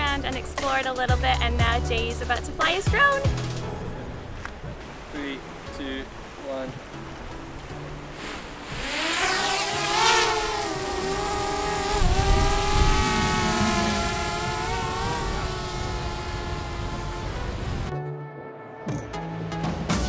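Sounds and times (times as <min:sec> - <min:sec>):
drone propellers whining: 0:08.5 - 0:17.9.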